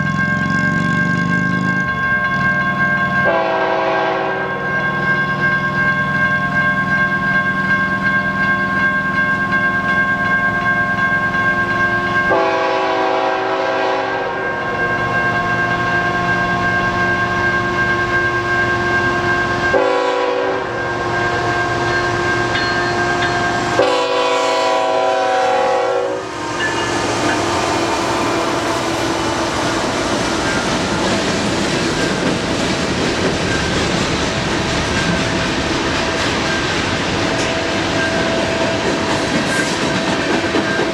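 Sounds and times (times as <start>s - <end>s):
train horn blasts: 3.2s - 4.7s, 12.3s - 14.9s, 19.6s - 21.5s, 23.6s - 30.1s.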